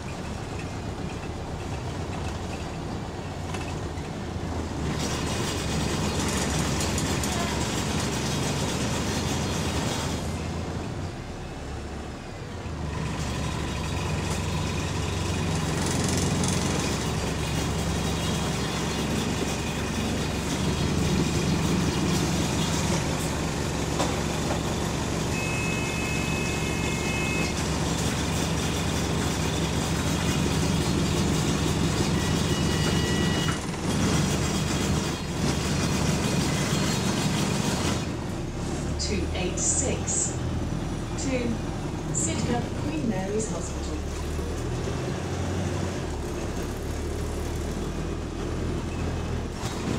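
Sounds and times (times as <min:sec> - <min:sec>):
bus engine running: 0:00.0 - 0:49.9
short high tone: 0:25.3 - 0:27.6.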